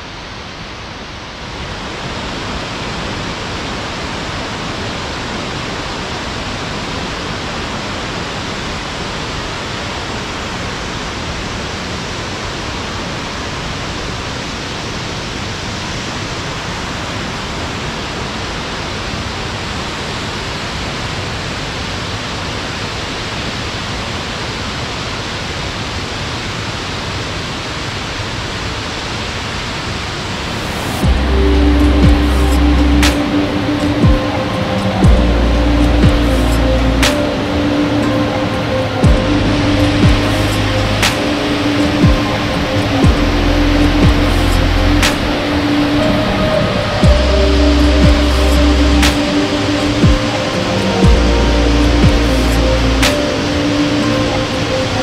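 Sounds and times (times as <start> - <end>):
waterfall roaring: 0.0 - 55.0.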